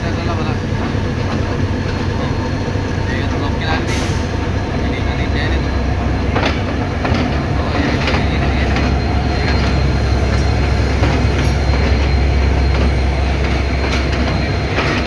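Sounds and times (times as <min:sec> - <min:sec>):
locomotive engine rumble: 0:00.0 - 0:15.0
wheels clicking on rails: 0:04.8 - 0:15.0.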